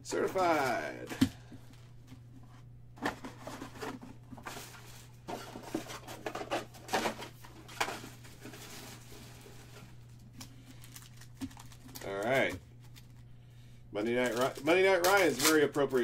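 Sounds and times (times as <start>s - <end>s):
low electrical hum: 0.0s - 16.0s
foil packs crinkling: 3.3s - 13.2s, 14.0s - 16.0s.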